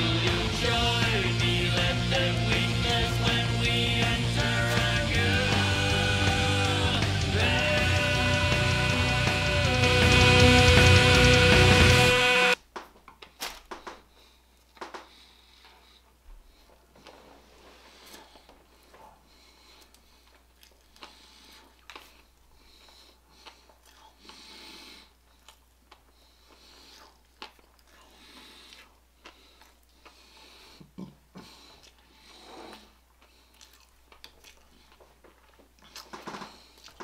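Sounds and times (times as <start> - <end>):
man breathing heavily: 14.0 - 17.0, 17.8 - 25.2, 28.0 - 33.6.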